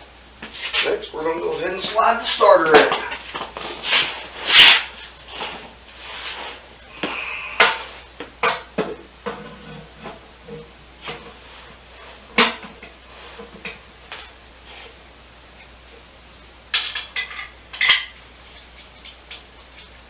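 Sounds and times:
metallic clanks and scrapes: 9.3 - 11.4.

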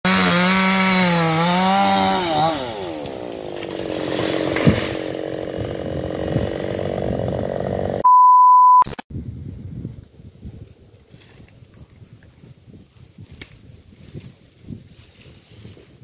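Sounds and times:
chainsaw running: 0.0 - 8.0
electronic beep: 8.0 - 9.0.

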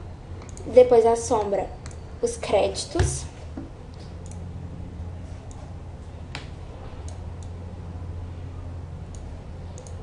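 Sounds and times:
low electrical hum: 0.0 - 10.0
computer mouse clicks: 6.4 - 7.6, 9.1 - 10.0.

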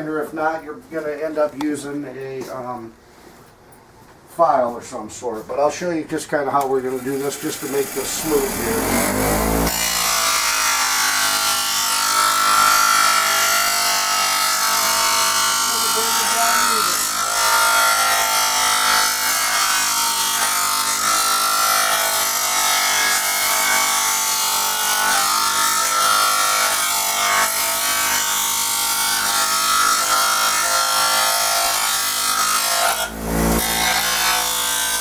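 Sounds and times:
grinding plastic rasp: 6.9 - 35.0
bench grinder motor whine: 7.0 - 35.0.

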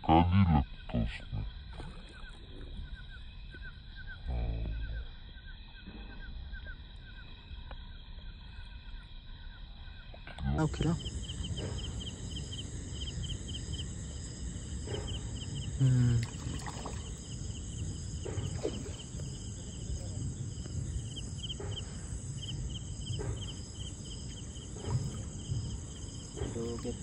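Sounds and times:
crickets chirping: 0.0 - 27.0
high-pitched insect buzz: 8.8 - 27.0.

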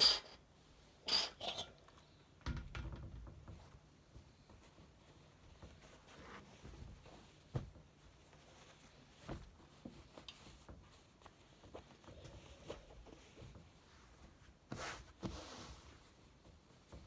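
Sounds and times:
fabric rustling: 3.5 - 17.0
fabric swish: 14.2 - 16.5.

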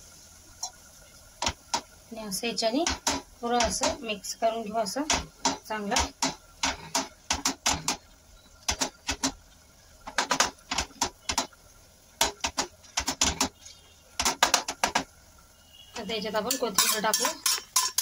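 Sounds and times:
potato masher knocking on pan: 2.8 - 4.0, 5.0 - 8.0, 14.2 - 15.1.

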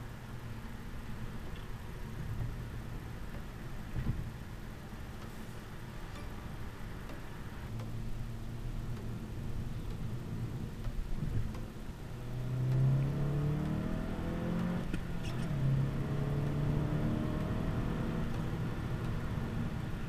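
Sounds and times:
low road rumble: 0.0 - 20.0
car engine accelerating: 6.8 - 20.0.

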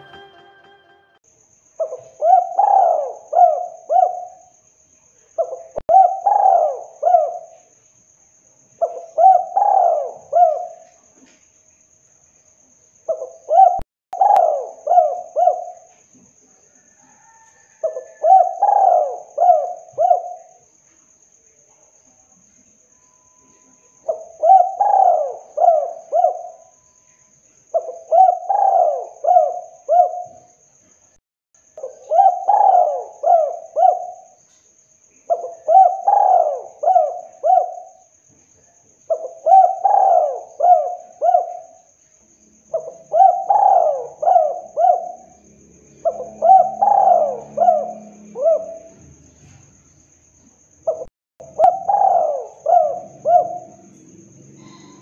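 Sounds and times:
dove cooing: 1.8 - 4.4, 5.4 - 7.6, 8.8 - 10.9, 13.1 - 15.9, 17.1 - 20.6, 24.1 - 26.7, 27.8 - 30.4, 31.8 - 34.4, 35.3 - 38.0, 39.1 - 41.8, 42.7 - 45.4, 46.0 - 49.2, 50.9 - 54.0, 54.6 - 55.0.

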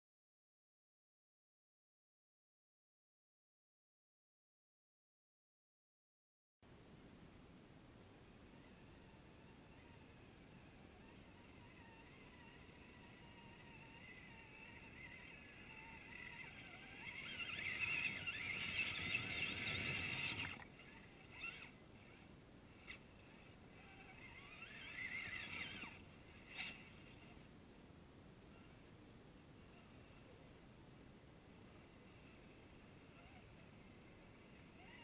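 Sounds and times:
electric motor whining: 8.6 - 27.6, 28.5 - 35.0.

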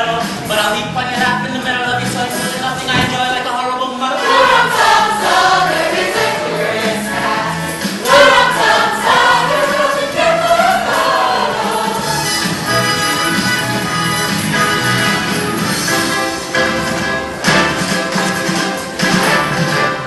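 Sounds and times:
ensemble singing in chorus: 2.4 - 12.8
instrumental accompaniment with bass beat: 11.9 - 20.0.

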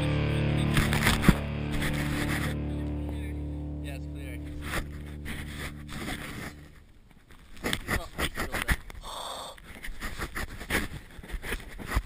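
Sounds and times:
person breathing and gasping: 9.0 - 10.0.

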